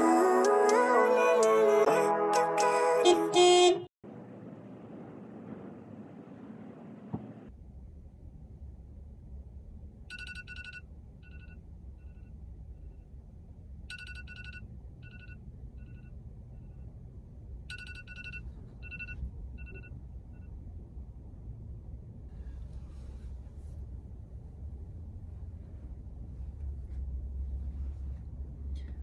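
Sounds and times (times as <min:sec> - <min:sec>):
electronic alarm beeps: 0:10.1 - 0:12.3, 0:13.9 - 0:16.8, 0:17.7 - 0:20.5
low rumble: 0:19.0 - 0:29.0.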